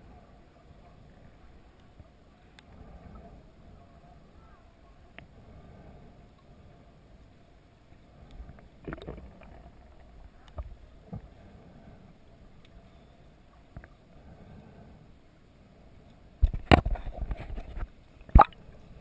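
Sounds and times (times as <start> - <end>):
water sloshing around camera: 8.2 - 14.1, 16.4 - 19.0.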